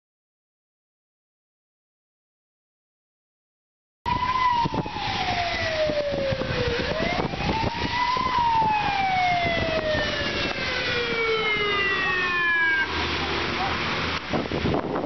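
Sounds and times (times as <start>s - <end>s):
ambulance siren wailing: 4.1s - 14.0s.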